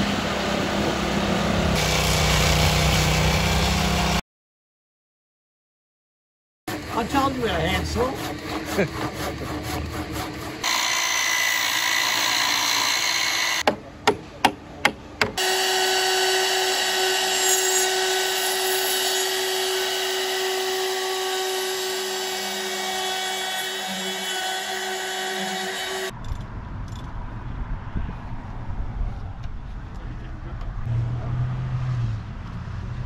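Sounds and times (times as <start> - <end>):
circular saw cutting wood: 0.0 - 4.2, 6.7 - 13.7, 15.2 - 26.1
trim router whining: 6.7 - 13.6, 15.4 - 26.1
sharp knocks: 13.6 - 15.4
low rumble: 26.1 - 31.5.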